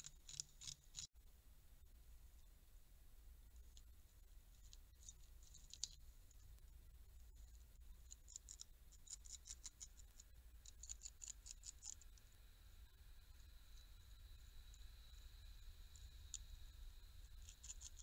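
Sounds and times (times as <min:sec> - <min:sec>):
low steady hum: 0:00.0 - 0:18.0
beaver gnawing wood: 0:08.0 - 0:12.2, 0:17.4 - 0:18.0.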